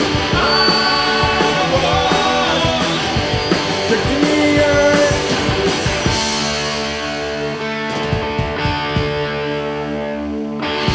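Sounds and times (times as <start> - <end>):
person singing: 0.0 - 5.5
distorted electric guitars: 0.0 - 10.9
drum kit: 0.0 - 10.9.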